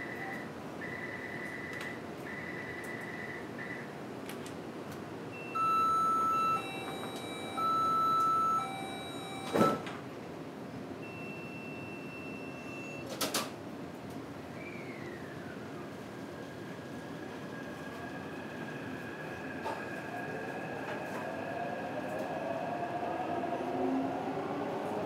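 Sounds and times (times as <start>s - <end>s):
long loud warning tones: 5.3s - 9.8s
repeated electronic beeps: 5.4s - 9.8s
train equipment humming: 5.4s - 9.8s
train doors shutting thud: 6.3s - 10.0s.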